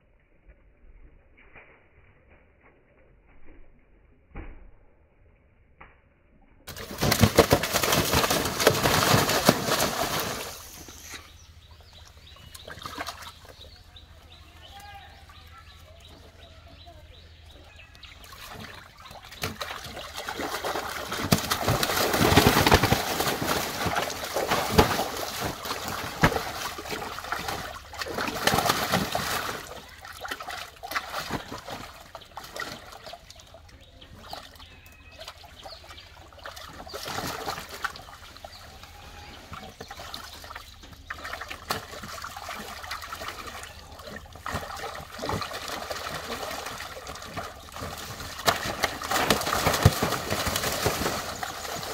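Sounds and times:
fish thrashing and splashing: 6.7 - 11.2, 18.1 - 33.5, 34.2 - 38.6, 39.5 - 51.9.

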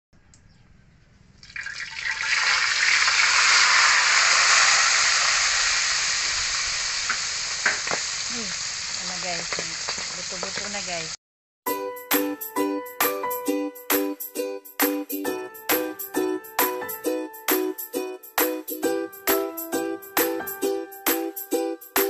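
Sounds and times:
fish sizzling in hot oil: 1.5 - 11.2.

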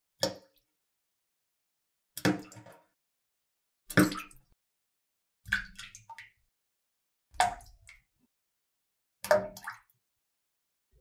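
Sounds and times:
water plops: 2.2 - 2.9, 3.9 - 4.6, 5.5 - 6.4, 7.3 - 8.1, 9.2 - 10.0.

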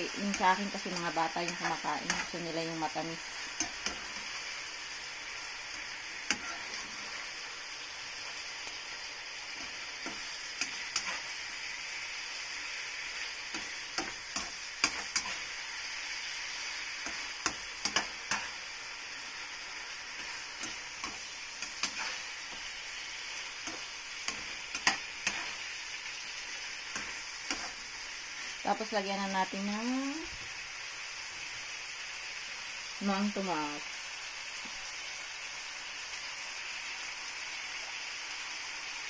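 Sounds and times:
chicken sizzling in a frying pan: 0.0 - 39.0
spatula scraping a pan: 0.2 - 4.7, 5.6 - 7.5, 9.4 - 11.8, 12.4 - 18.7, 19.6 - 28.5.

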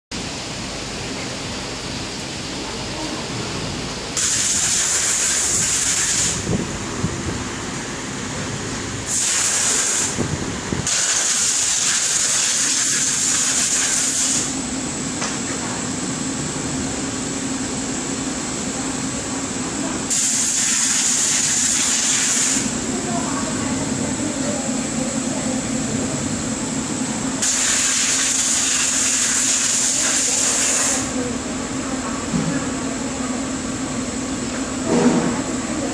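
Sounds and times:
workshop machinery hum: 0.1 - 35.9
loud even hiss: 4.2 - 6.6, 9.0 - 14.6, 20.1 - 22.7, 27.4 - 31.2.

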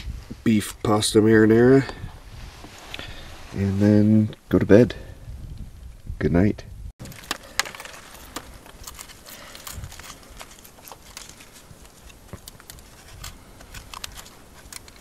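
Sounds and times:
bags rustling and crinkling: 7.0 - 15.0.

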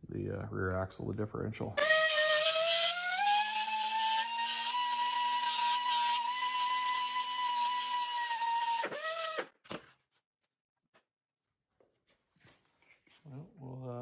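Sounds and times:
pneumatic air tool whining: 1.8 - 9.7.

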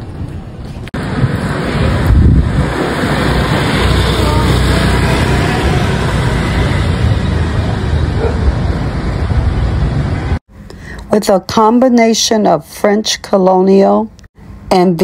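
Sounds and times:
wind buffeting microphone: 0.0 - 10.4
city traffic: 0.0 - 15.0.

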